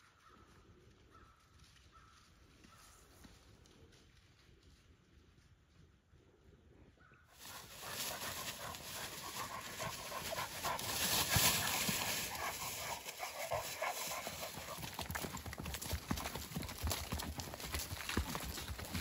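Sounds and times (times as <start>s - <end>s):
horse hoofbeats in leaves: 0.0s - 6.3s, 7.4s - 19.0s
dogs scrambling through dry leaves: 7.4s - 16.9s
hounds panting: 7.4s - 19.0s.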